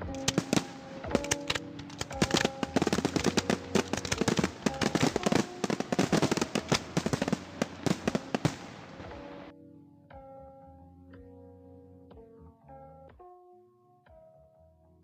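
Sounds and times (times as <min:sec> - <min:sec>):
fireworks bangs and crackles: 0:00.0 - 0:09.5
faint held music notes: 0:00.0 - 0:13.3.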